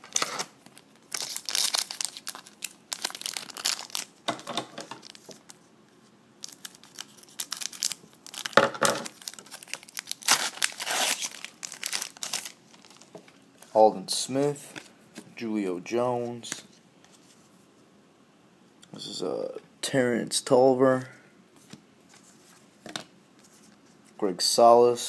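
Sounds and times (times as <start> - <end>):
wrappers crinkling and rustling: 0.0 - 5.6, 6.4 - 13.8.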